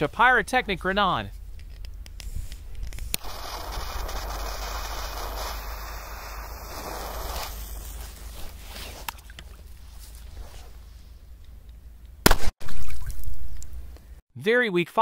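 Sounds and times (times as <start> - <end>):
torch lighter clicking: 1.9 - 7.8
torch lighter hissing: 2.1 - 8.6.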